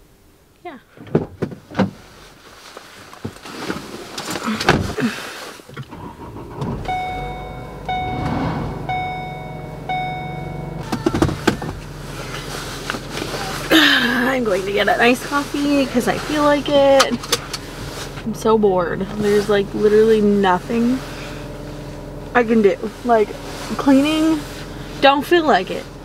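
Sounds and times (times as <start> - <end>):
car door and seat thumps: 1.0 - 2.0, 4.6 - 5.0, 10.8 - 11.9
car engine humming: 3.8 - 26.0
dashboard warning chime: 6.8 - 11.1.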